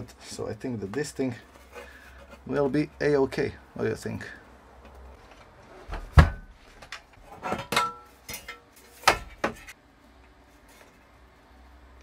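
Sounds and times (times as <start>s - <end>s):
metal knocking and clinking: 7.4s - 9.7s.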